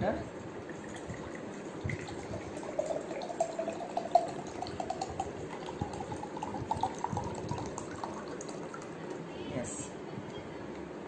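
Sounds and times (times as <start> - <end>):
water pouring into glass jar: 0.7 - 9.2.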